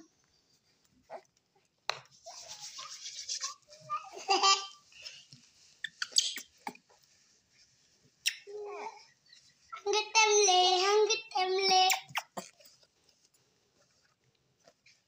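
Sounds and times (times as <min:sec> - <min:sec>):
baby monkey squealing: 0:05.8 - 0:06.6.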